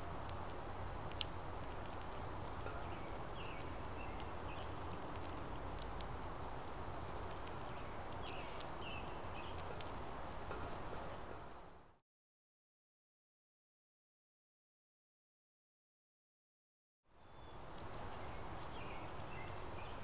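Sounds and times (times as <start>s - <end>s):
steady hiss: 0.0s - 11.8s
small birds chirping: 0.0s - 12.0s, 17.1s - 20.0s
faint clicks: 0.1s - 12.0s.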